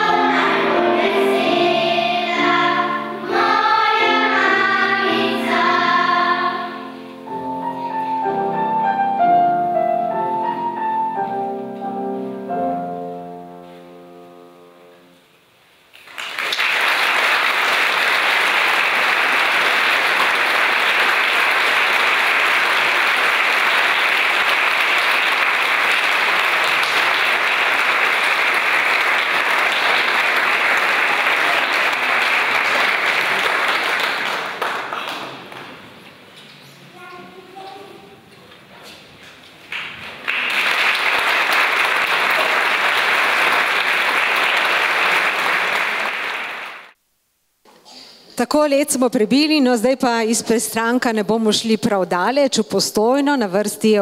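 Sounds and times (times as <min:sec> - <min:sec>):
children's choir singing: 0:00.0 - 0:08.0
audience applause: 0:15.9 - 0:35.8, 0:39.7 - 0:47.0.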